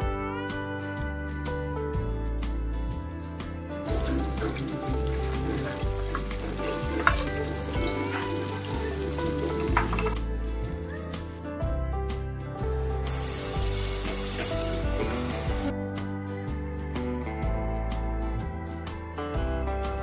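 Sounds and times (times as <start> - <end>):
background music: 0.0 - 20.0
onions sizzling in oil: 3.9 - 10.2, 13.0 - 15.7.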